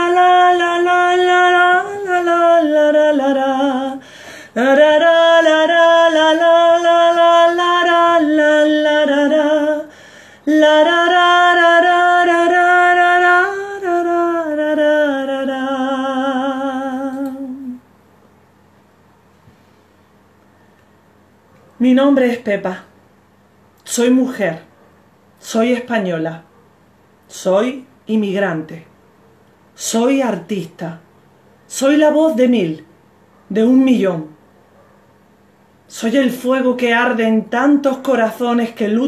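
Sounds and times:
woman singing a cappella: 0.0s - 17.9s, 21.8s - 22.9s, 25.4s - 26.4s, 29.7s - 31.0s, 31.7s - 32.9s, 35.8s - 39.0s.

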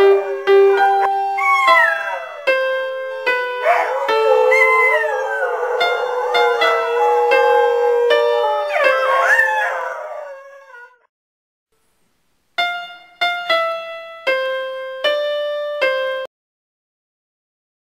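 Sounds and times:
dog howling: 0.0s - 2.8s, 3.5s - 11.1s
electric keyboard playing: 0.0s - 10.3s, 12.6s - 16.3s.

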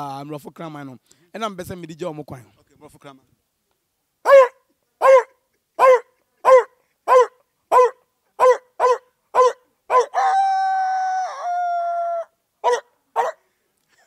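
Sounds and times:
man imitating dog barks: 4.2s - 10.5s, 12.2s - 13.4s.

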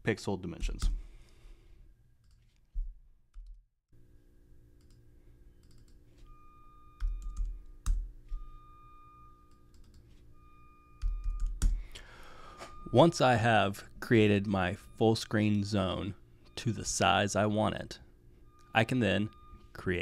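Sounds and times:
faint steady hum: 4.0s - 20.0s
typing on computer keyboard: 5.6s - 6.0s, 7.0s - 8.0s, 11.0s - 11.8s.

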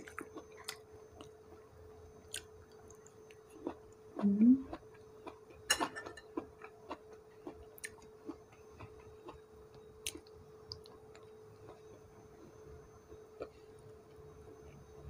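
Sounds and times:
person eating and chewing: 0.0s - 1.6s, 2.2s - 9.4s, 10.0s - 11.9s
faint steady hum: 0.0s - 15.0s.

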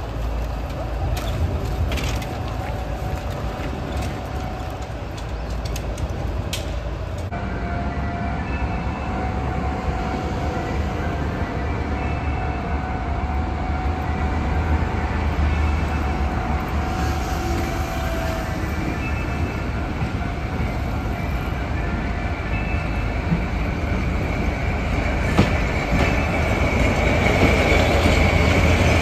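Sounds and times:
train rumbling on rails: 0.0s - 29.0s.

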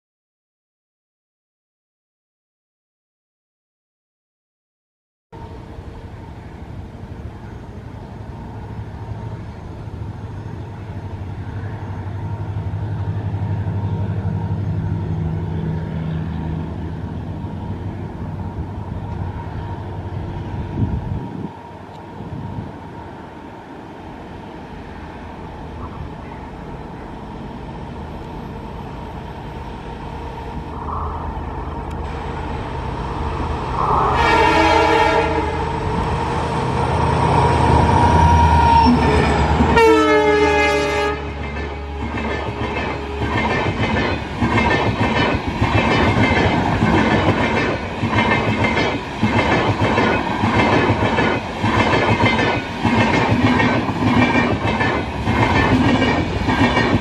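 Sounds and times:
diesel locomotive engine: 5.4s - 57.0s
train horn: 33.8s - 36.0s, 37.9s - 42.1s
train wheels clickety-clack: 38.9s - 57.0s.

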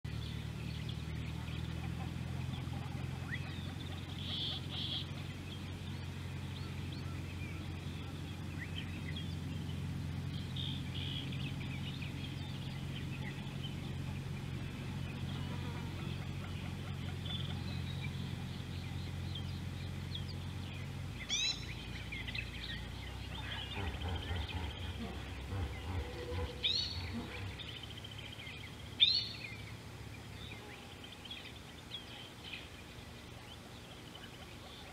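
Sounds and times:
loud sweeping bird calls: 0.1s - 34.9s
steady low hum: 0.1s - 34.9s
birds calling in short high notes: 3.3s - 5.2s, 21.2s - 29.7s.

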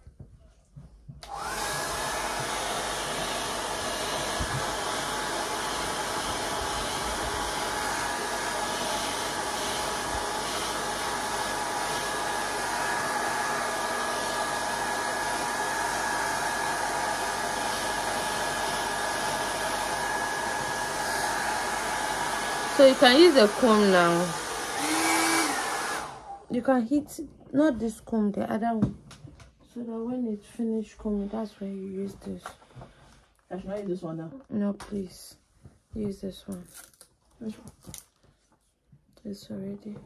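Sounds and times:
hair dryer blowing: 1.1s - 26.7s.

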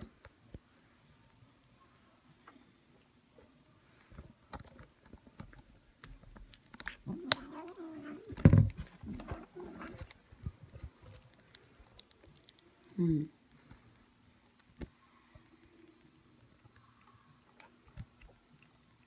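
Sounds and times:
soft clicks and rustles: 0.0s - 19.0s.

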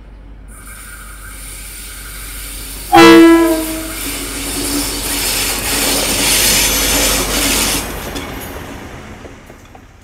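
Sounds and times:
diesel locomotive passing: 0.0s - 10.0s
train horn blast: 2.9s - 4.0s.

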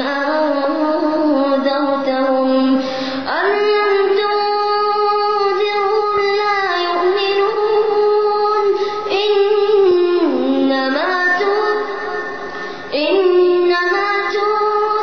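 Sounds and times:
boy chanting recitation: 0.0s - 15.0s.

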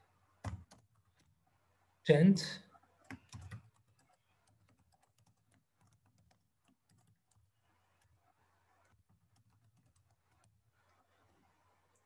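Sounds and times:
typing on computer keyboard: 3.0s - 7.4s, 9.1s - 10.5s.

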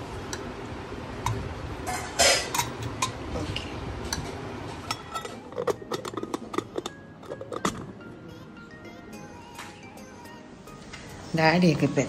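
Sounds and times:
ladle knocking in steel pot: 4.9s - 7.9s
metal lid clicks and taps: 4.9s - 7.9s.

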